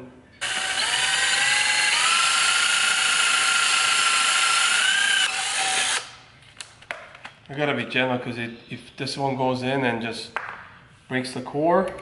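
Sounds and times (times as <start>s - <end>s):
cordless drill drilling metal: 0.4s - 6.1s.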